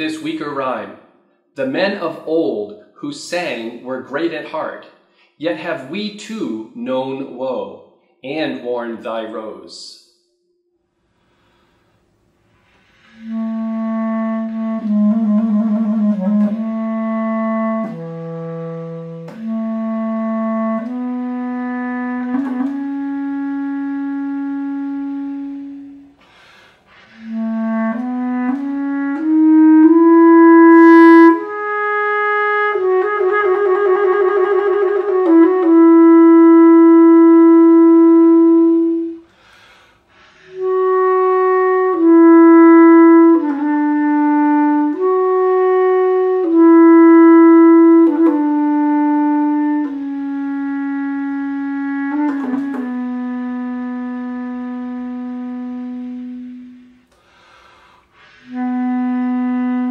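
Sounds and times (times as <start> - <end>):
bass clarinet playing slow melody: 12.8 - 39.5, 40.2 - 59.9.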